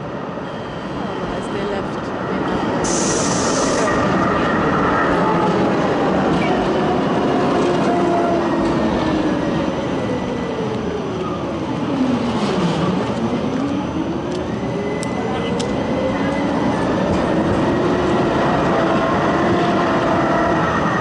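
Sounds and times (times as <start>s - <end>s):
tram wheels rumbling on rails: 0.0s - 21.0s
brief high hiss: 2.8s - 3.9s.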